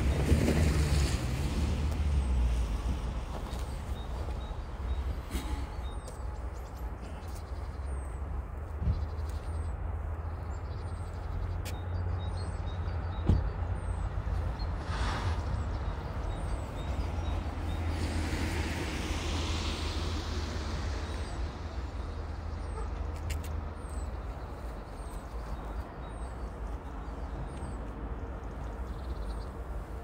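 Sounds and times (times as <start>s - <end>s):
distant diesel locomotive rumble: 0.0s - 30.0s
rush of noise: 14.8s - 22.5s.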